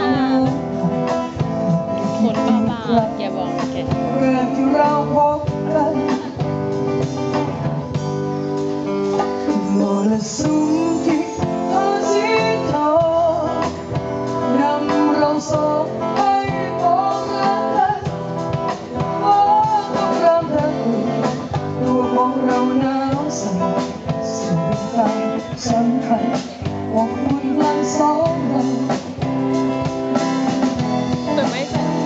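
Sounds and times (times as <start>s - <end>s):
person singing: 0.0s - 6.6s, 9.5s - 18.2s, 19.0s - 29.2s
hand drums: 0.0s - 25.1s, 25.7s - 32.0s
drum kit beat: 0.0s - 32.0s
guitars: 0.0s - 32.0s.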